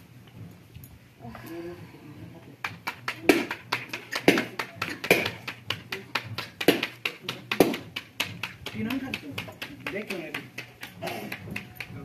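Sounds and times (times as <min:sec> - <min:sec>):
rapid hard taps and clicks: 0:02.6 - 0:12.0.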